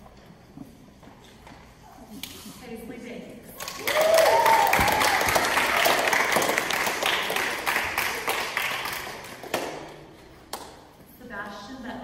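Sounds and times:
audience applause: 3.6 - 9.8.

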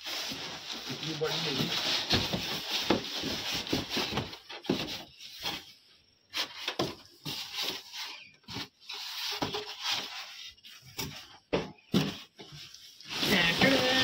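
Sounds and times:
foam scraping against cardboard: 13.0 - 14.0.

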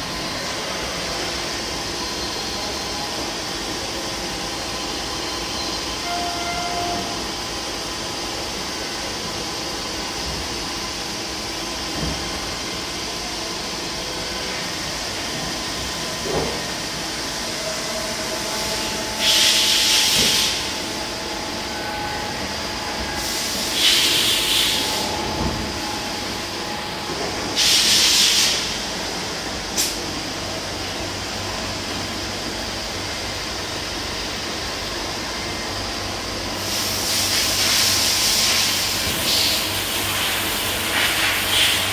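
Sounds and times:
loud hissing bursts: 18.4 - 20.9, 23.2 - 25.1, 27.6 - 28.8.

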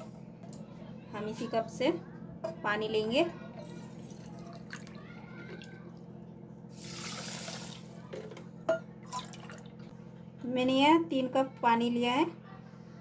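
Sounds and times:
water pouring into metal cup: 6.8 - 7.9.

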